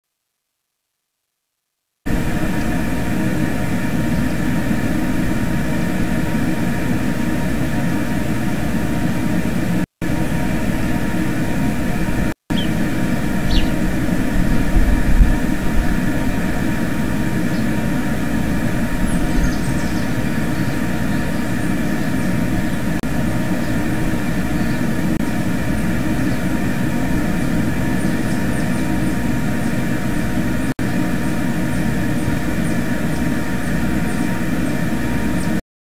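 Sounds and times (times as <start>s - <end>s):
steady mechanical drone: 2.1s - 35.6s.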